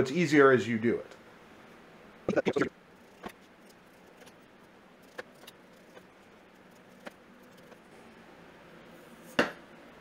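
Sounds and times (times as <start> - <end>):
knife clicking and scraping rind: 5.0 - 7.8.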